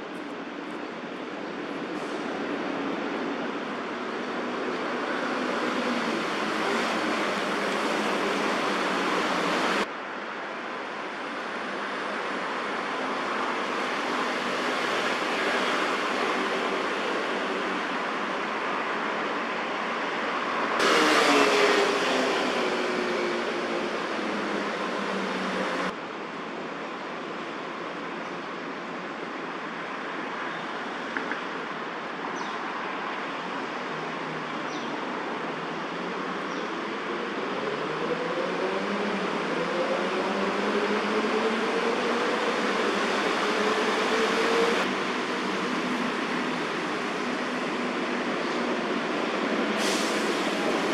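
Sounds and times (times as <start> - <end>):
city traffic noise: 0.0 - 50.9
passing vehicle engine: 20.8 - 26.0.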